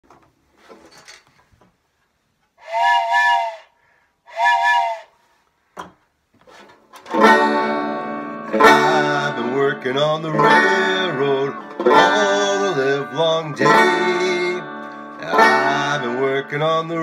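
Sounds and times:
wooden train whistle blasts: 0:02.6 - 0:05.2
banjo playing: 0:07.0 - 0:17.0.

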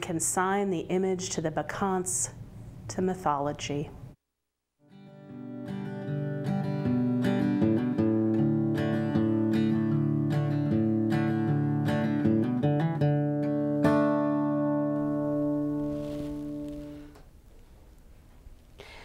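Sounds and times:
acoustic guitar picking: 0:04.9 - 0:17.2.

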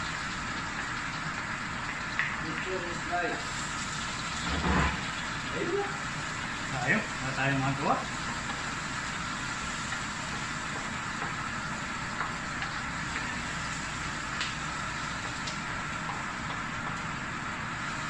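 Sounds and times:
gas range and ventilation running: 0:00.0 - 0:18.0
spatula tapping wok: 0:09.8 - 0:13.4, 0:14.4 - 0:17.4.

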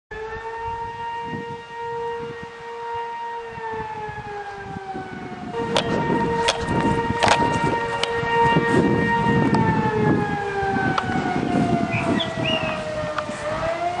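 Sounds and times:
warning siren wailing: 0:00.1 - 0:14.0
sharp crackling knocks: 0:05.6 - 0:08.6.

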